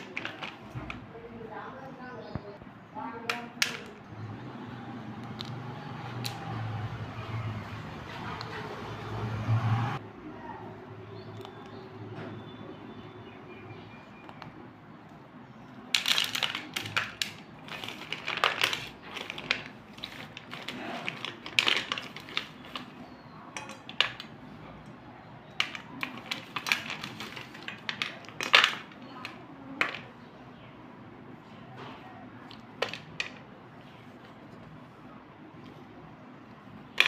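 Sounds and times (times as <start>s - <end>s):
pencil sticks clinking on steel plate: 23.5s - 24.3s.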